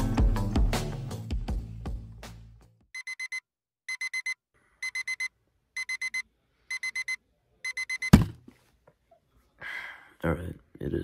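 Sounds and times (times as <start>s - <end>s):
digital alarm clock beeping: 3.0s - 8.3s.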